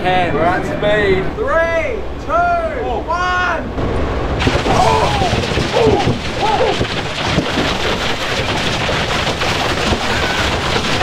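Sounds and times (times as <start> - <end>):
cans crashing in blender: 4.4 - 11.0.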